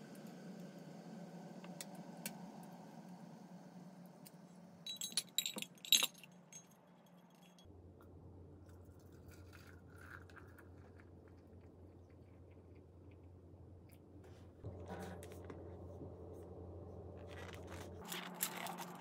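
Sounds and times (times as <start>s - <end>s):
metallic clinks against a mug: 4.9s - 6.7s.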